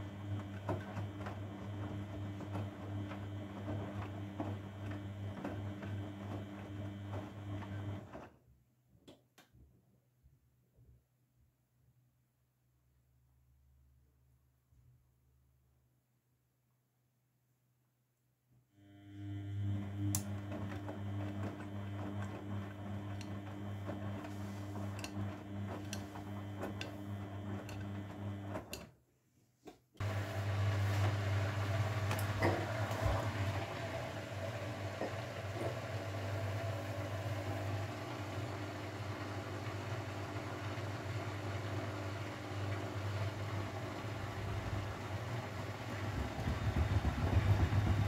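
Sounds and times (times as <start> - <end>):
washing machine humming: 0.0 - 8.3, 18.8 - 28.9, 30.0 - 48.0.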